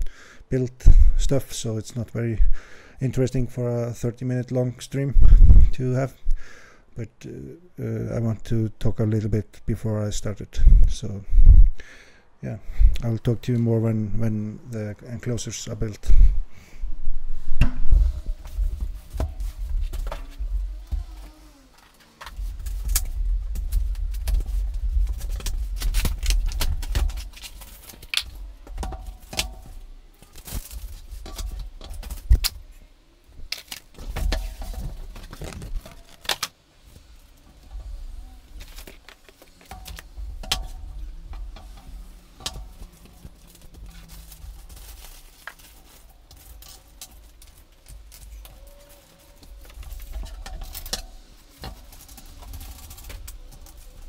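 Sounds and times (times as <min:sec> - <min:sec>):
bag of metal fittings rattling: 0:37.2 - 0:54.0.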